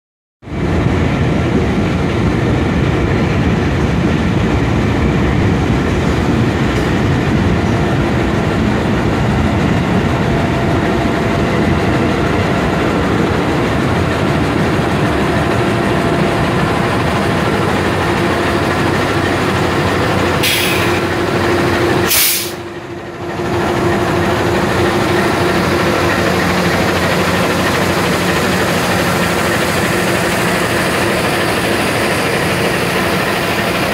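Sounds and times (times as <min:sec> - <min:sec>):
locomotive diesel engine running: 0:00.5 - 0:33.9
short hiss bursts: 0:22.1 - 0:22.6.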